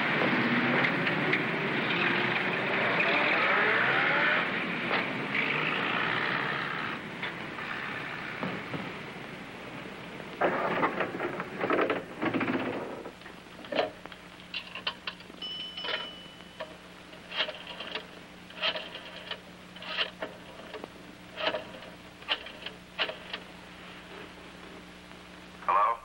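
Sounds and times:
telephone bell ringing: 0:15.4 - 0:16.7
rotary dial clicking: 0:16.6 - 0:20.8, 0:21.4 - 0:23.4
shuffling noise: 0:23.7 - 0:24.8.

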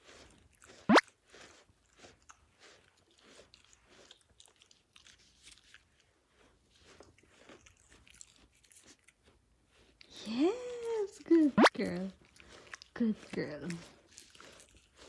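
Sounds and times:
brush strokes through fur: 0:00.0 - 0:04.2.

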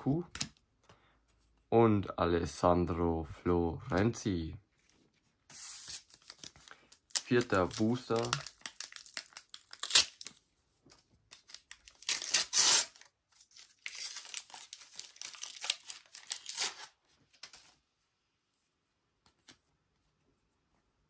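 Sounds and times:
wrapper crinkling: 0:05.6 - 0:10.4, 0:11.3 - 0:17.7
wrapper ripping: 0:05.6 - 0:10.4, 0:11.3 - 0:17.0.

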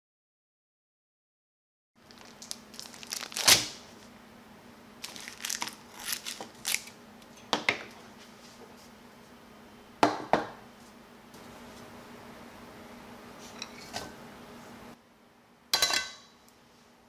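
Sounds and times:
plastic bag crinkling: 0:02.0 - 0:04.1, 0:05.0 - 0:07.0.

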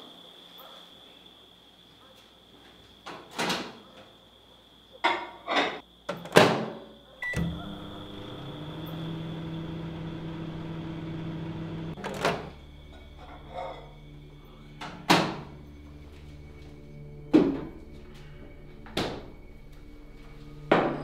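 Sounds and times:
microwave sharp click: 0:07.2 - 0:11.7
microwave beep: 0:07.2 - 0:12.0
microwave humming: 0:07.2 - 0:12.6.

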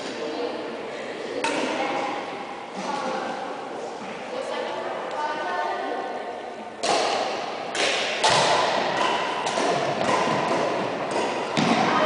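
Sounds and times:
racket striking shuttlecock: 0:06.8 - 0:12.0.

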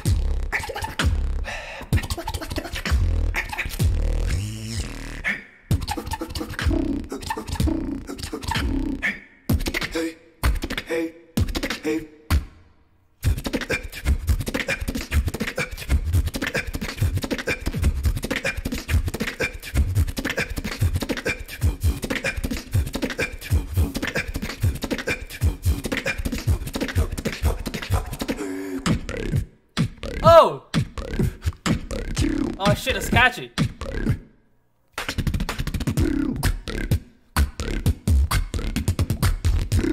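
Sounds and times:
person beatboxing: 0:00.0 - 0:12.5, 0:13.2 - 0:34.3, 0:35.0 - 0:39.9.

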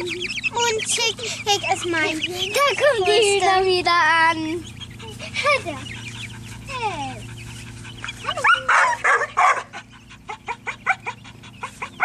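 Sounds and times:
dog whining and yelping: 0:04.9 - 0:12.0.

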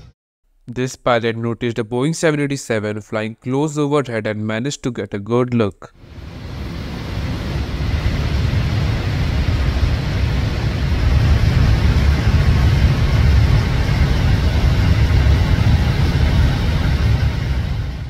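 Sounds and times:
airliner cockpit air roar: 0:06.0 - 0:18.0.

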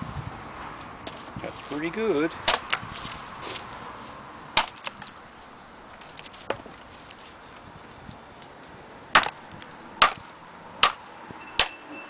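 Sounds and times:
hatchet chopping wood: 0:02.4 - 0:02.9, 0:04.6 - 0:05.0, 0:09.1 - 0:11.8.

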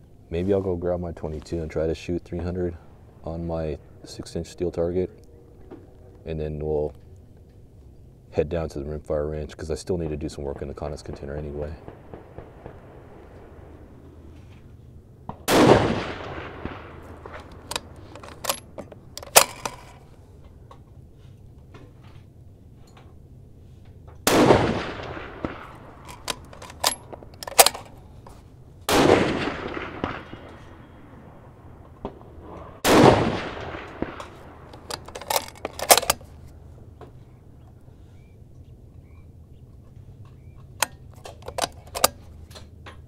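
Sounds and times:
rifle shots with rolling echo: 0:10.8 - 0:20.2, 0:24.2 - 0:37.6
faint sharp cracks: 0:31.8 - 0:37.8.

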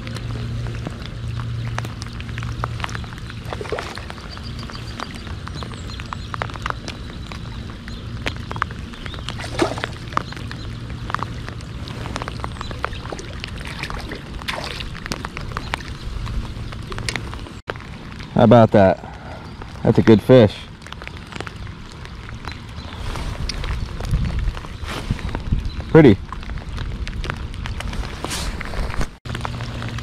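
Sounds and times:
low steady hum: 0:00.0 - 0:20.0
light rain ticking: 0:00.0 - 0:28.3
water splashing and dripping: 0:00.0 - 0:28.7.

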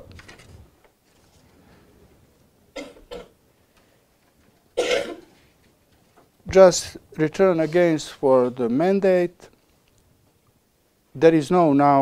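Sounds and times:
soft rustling: 0:00.1 - 0:02.5.

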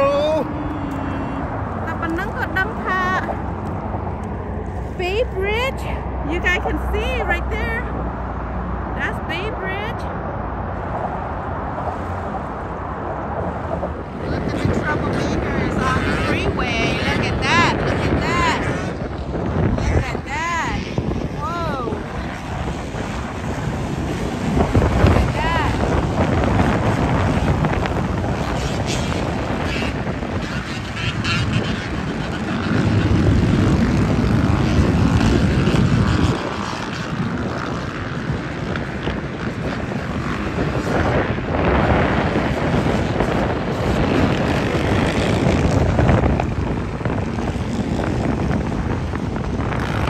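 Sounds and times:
boat motor running: 0:00.0 - 0:10.0, 0:11.9 - 0:50.0
wind buffeting microphone: 0:00.0 - 0:50.0.

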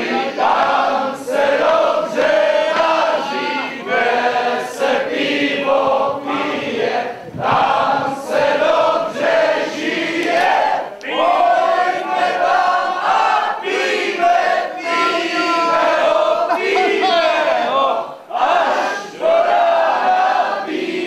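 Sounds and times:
crowd singing in chorus: 0:00.0 - 0:21.0.

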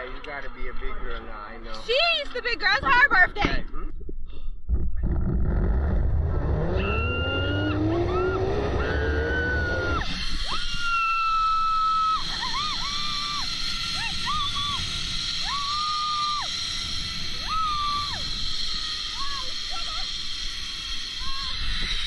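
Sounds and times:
zip-line trolley whirring on cable: 0:05.0 - 0:22.0.

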